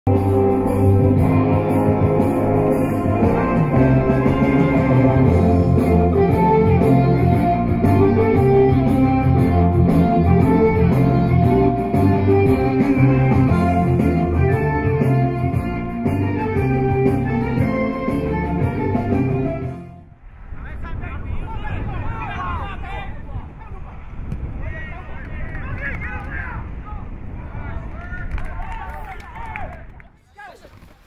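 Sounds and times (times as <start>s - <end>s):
steady drum beat: 0.1s - 19.2s
guitar-led music: 0.1s - 20.1s.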